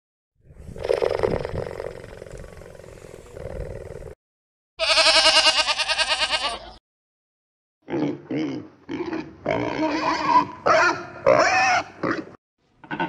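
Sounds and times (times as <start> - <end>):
goat bleating: 4.8 - 6.8.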